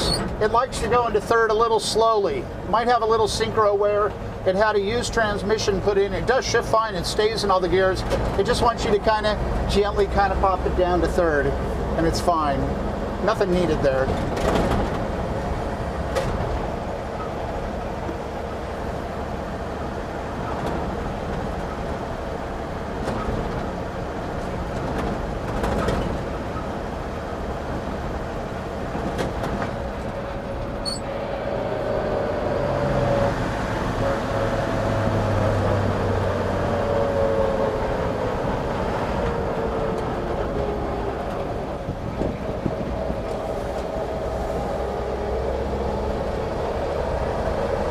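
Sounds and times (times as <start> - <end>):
road noise: 0.0 - 47.9
truck body rattles: 13.9 - 17.4, 22.8 - 26.9, 27.6 - 31.0.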